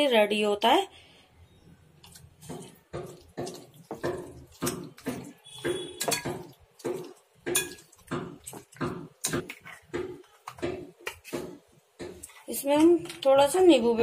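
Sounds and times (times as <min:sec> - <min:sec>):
metal spoon scraping glass bowl: 0:04.6 - 0:07.9.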